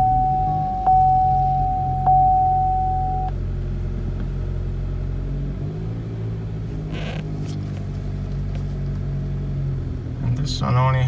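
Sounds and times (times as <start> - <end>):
steady warning tone: 0.0 - 3.4
car engine idling: 0.0 - 5.5.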